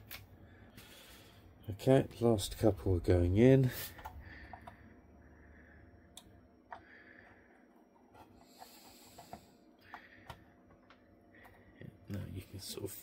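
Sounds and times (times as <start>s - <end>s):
faint breathing: 0.4s - 1.6s, 3.6s - 12.0s.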